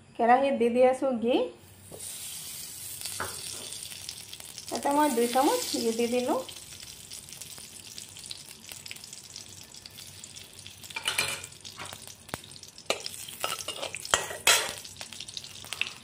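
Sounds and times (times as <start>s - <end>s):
butter sizzling in a wok: 1.6s - 16.0s
metal spatula scraping pan: 12.9s - 14.8s.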